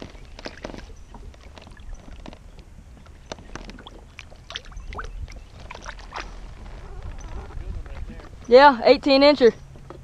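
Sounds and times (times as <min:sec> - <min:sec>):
low steady rumble: 0:00.1 - 0:10.0
water splashing and dripping: 0:03.0 - 0:06.4.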